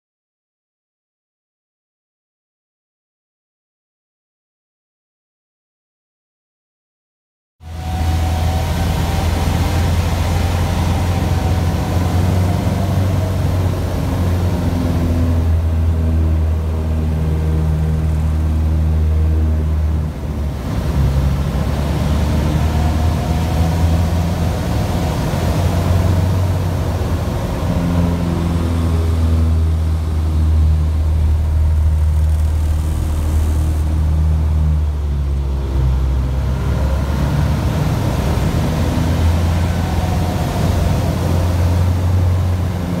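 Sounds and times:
plane engine and propeller droning: 0:07.6 - 0:43.0.

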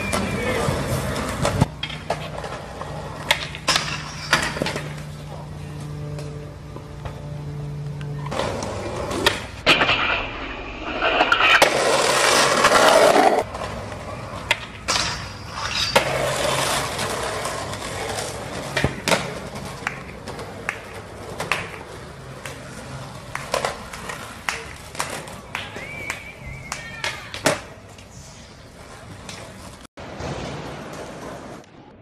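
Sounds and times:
skateboard clacks: 0:00.0 - 0:05.2, 0:11.4 - 0:28.1
skateboards rolling on concrete: 0:00.0 - 0:32.0.

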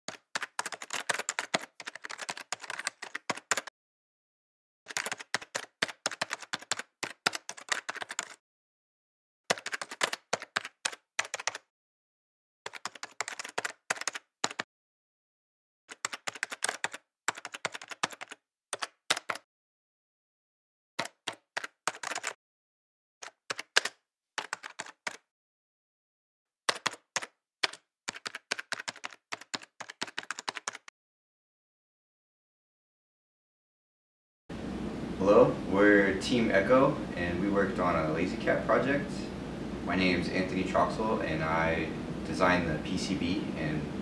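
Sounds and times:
keyboard typing clicks: 0:00.1 - 0:03.7, 0:04.9 - 0:08.4, 0:09.5 - 0:11.6, 0:12.7 - 0:14.6, 0:15.9 - 0:19.4, 0:21.0 - 0:22.4, 0:23.2 - 0:25.2, 0:26.7 - 0:30.9.

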